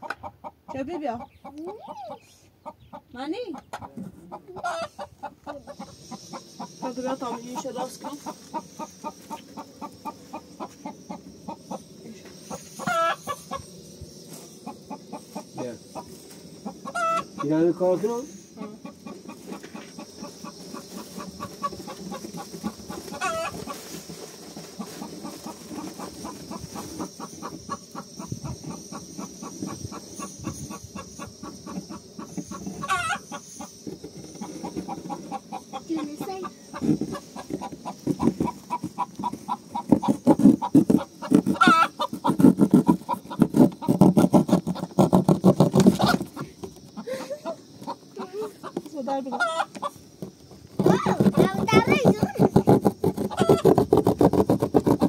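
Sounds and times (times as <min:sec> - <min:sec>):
chickens clucking: 0:00.0 - 0:55.0
short high chicken calls: 0:01.6 - 0:02.7, 0:04.6 - 0:06.9, 0:12.8 - 0:13.6, 0:16.8 - 0:17.5, 0:22.9 - 0:23.8, 0:32.8 - 0:33.4, 0:36.7 - 0:43.2.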